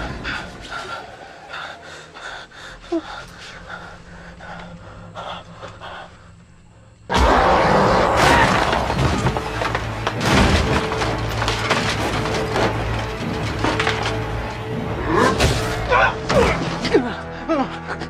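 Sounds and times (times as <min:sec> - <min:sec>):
film music: 0:00.0 - 0:18.0
tense ambience: 0:00.0 - 0:18.0
loud crashing noise: 0:07.1 - 0:14.4
thuds and cracks: 0:08.2 - 0:14.5.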